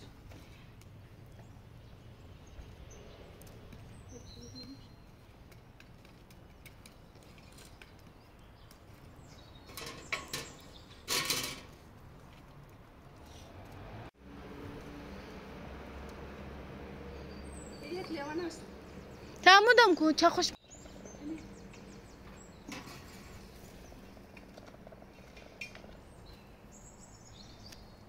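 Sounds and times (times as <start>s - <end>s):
bird chirps: 1.3s - 5.3s, 20.6s - 24.1s
metal cookware clatter: 9.7s - 11.7s.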